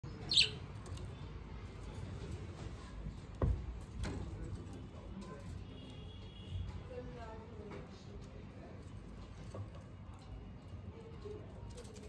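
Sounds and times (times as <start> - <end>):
budgerigar chirp: 0.2 - 0.6.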